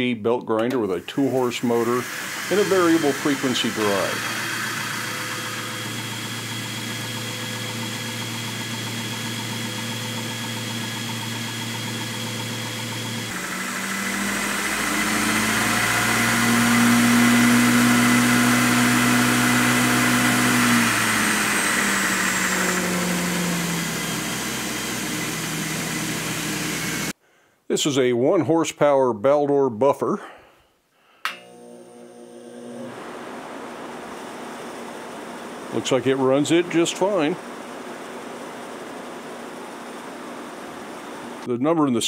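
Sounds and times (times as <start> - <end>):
belt grinder motor humming: 0.8 - 27.1, 34.2 - 39.9.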